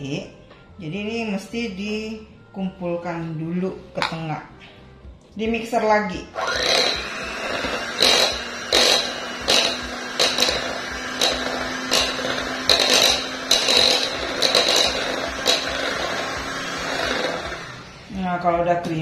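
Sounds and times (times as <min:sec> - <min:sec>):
electric hand mixer whirring: 0:06.3 - 0:18.2.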